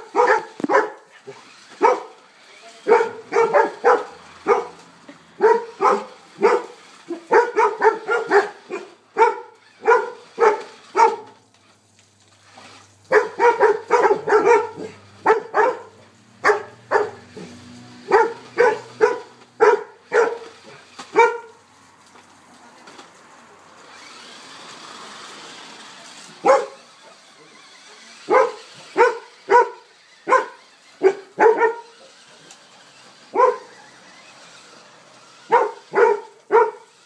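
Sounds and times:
dog barking: 0:00.0 - 0:02.2, 0:02.8 - 0:04.8, 0:05.4 - 0:11.3, 0:13.1 - 0:21.6, 0:26.4 - 0:26.9, 0:28.2 - 0:32.0, 0:33.3 - 0:33.8, 0:35.5 - 0:36.9.

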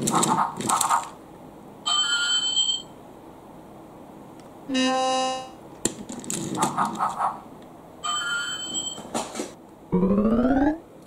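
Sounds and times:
choppy mid-pitched bursts: 0:09.9 - 0:10.9.

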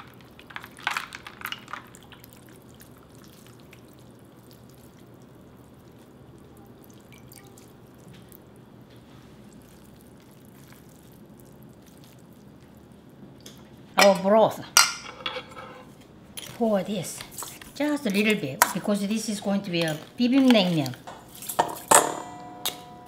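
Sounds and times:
water dripping into bowl: 0:01.9 - 0:08.4.

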